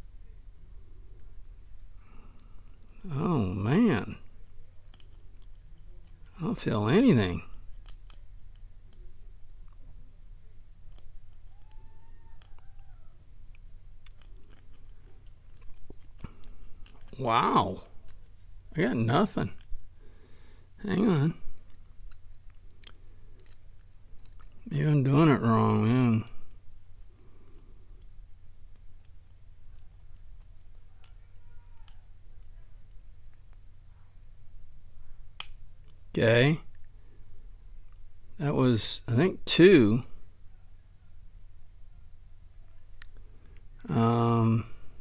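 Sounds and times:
faint squeak: 0:11.4 - 0:13.2, 0:30.8 - 0:32.1
lock pick ticks and scrapes: 0:23.4 - 0:24.6.

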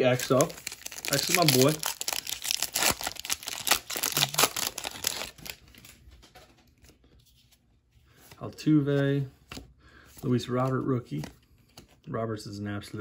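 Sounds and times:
wrapper tearing and crinkling: 0:00.0 - 0:06.0.

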